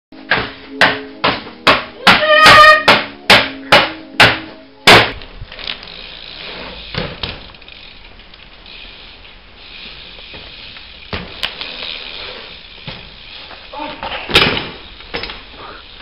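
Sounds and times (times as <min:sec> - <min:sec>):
bicycle floor pump strokes: 0:05.2 - 0:16.0.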